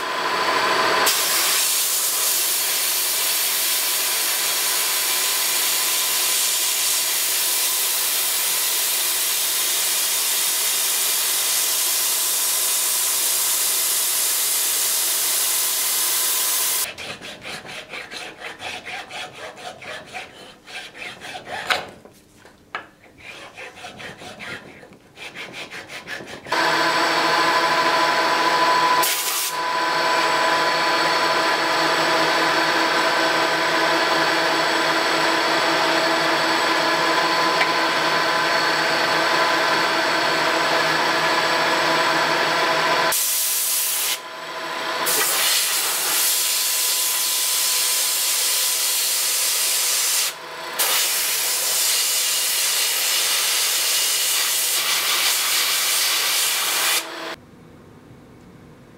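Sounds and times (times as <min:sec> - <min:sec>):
hand tool rasping metal rod: 0:16.8 - 0:21.9, 0:22.8 - 0:26.6
metal lathe humming: 0:26.5 - 0:43.1.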